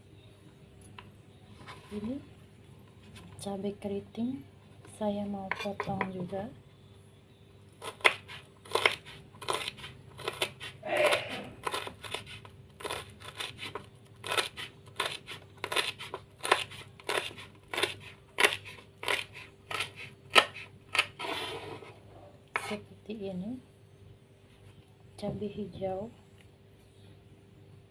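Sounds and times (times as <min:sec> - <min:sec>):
knife chopping on wooden board: 0:07.8 - 0:21.1.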